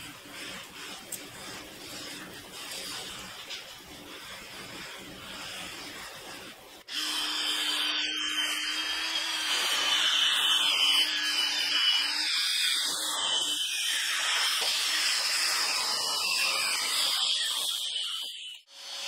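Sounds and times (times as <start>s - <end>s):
brush scrubbing cloth seat: 0.0s - 6.9s.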